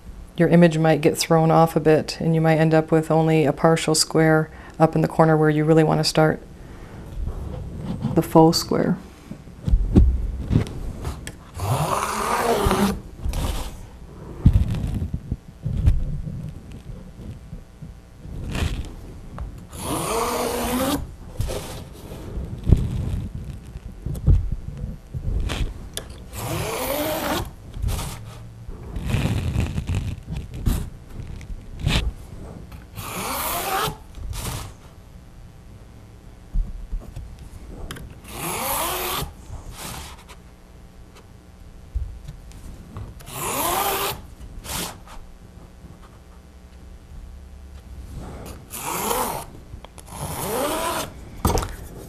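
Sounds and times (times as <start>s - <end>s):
ruler strokes squeaking on canvas: 11.6s - 13.8s, 19.7s - 22.2s, 26.4s - 30.9s, 33.0s - 34.7s, 38.3s - 40.3s, 43.3s - 45.2s, 48.8s - 49.5s.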